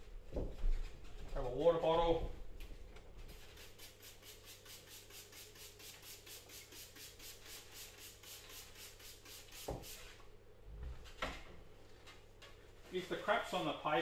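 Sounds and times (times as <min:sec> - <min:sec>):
spray bottle squirting: 0:03.3 - 0:10.1.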